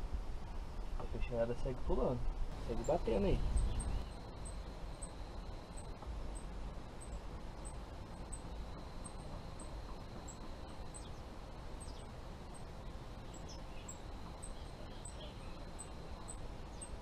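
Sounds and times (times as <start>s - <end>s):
steady low rumble: 0.0s - 17.0s
birds calling: 2.5s - 17.0s.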